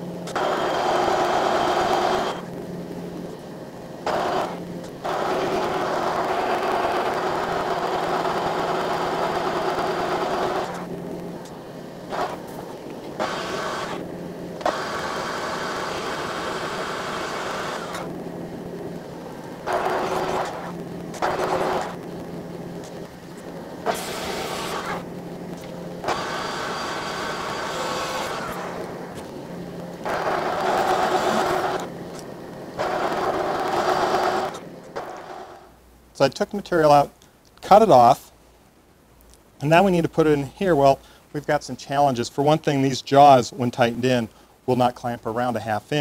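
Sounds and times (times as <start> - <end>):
metal lathe humming: 0.0 - 35.7
short noisy bursts: 0.0 - 35.8.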